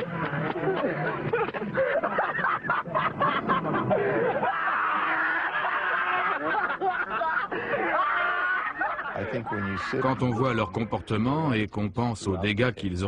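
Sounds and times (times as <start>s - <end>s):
young men snickering and laughing: 0.0s - 10.7s.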